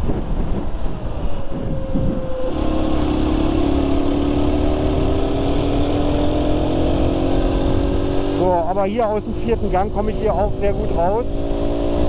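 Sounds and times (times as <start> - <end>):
motorcycle engine: 0.0 - 12.0
wind noise: 0.0 - 12.0.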